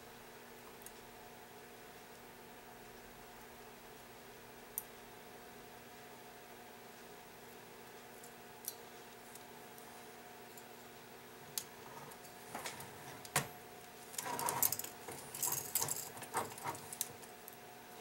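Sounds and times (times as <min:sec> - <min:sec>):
clock movement clicking and clinking: 0:14.2 - 0:17.2.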